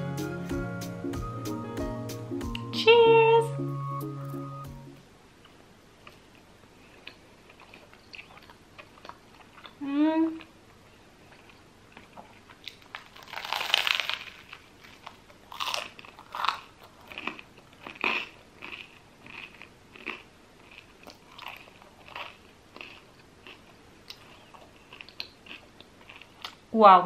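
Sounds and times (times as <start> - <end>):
crunchy bread bite and chewing: 11.3 - 26.6.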